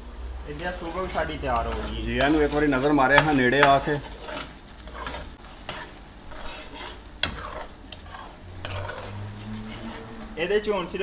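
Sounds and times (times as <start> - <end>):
sauce sizzling softly: 0.0 - 11.0.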